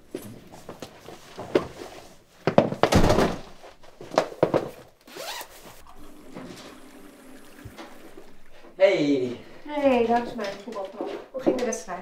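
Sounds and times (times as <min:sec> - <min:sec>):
knocks and thuds: 0:02.5 - 0:04.8.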